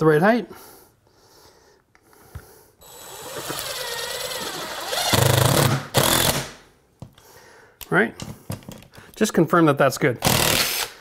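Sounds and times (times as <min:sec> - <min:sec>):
impact driver hammering: 0:04.9 - 0:06.6.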